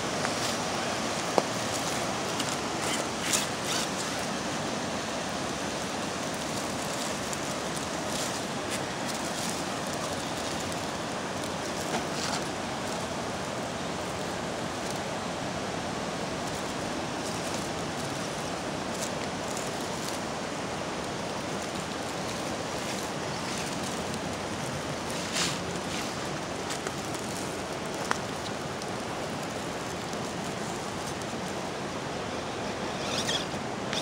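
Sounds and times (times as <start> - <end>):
water rushing over shoals: 0.0 - 34.0.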